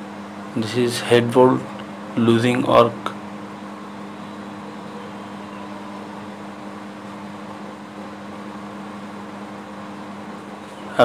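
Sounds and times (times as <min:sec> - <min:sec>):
machinery humming: 0:00.0 - 0:11.0.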